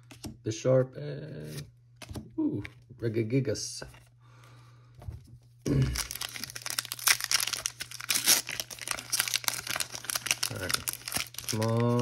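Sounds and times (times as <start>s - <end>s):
foil wrapper crinkling and tearing: 5.7s - 12.0s.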